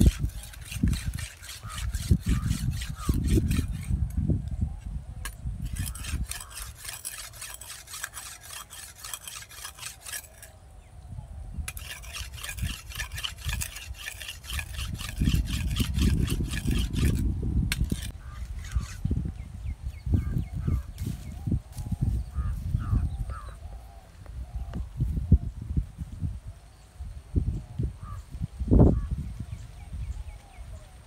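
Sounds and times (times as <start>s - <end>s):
machete sharpened on stone: 0.0s - 4.0s, 5.6s - 10.6s, 11.7s - 19.1s.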